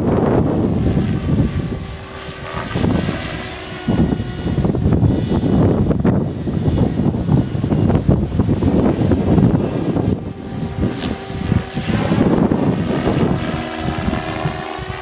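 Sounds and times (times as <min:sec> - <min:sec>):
rc helicopter motor whine: 0:00.0 - 0:15.0
wind buffeting microphone: 0:00.0 - 0:15.0.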